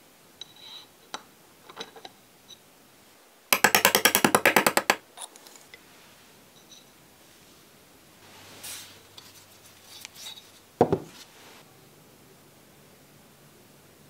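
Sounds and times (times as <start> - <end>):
wooden stick tapping metal: 3.6 - 5.0.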